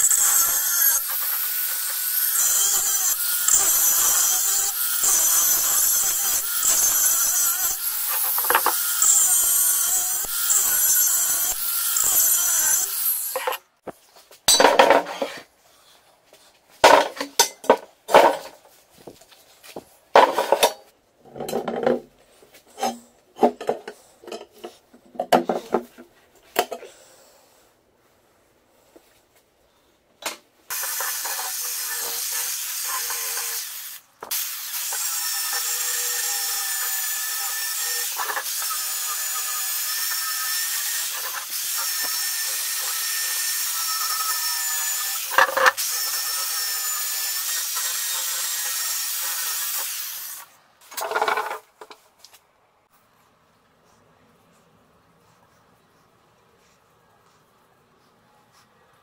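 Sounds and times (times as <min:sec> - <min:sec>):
angle grinder cutting steel: 0:00.0 - 0:13.7, 0:30.7 - 0:51.6.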